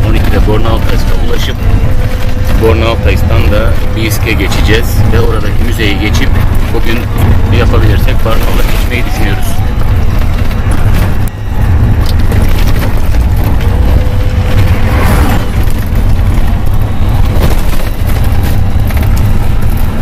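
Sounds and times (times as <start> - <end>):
vehicle rumbling on gravel road: 0.0 - 20.0.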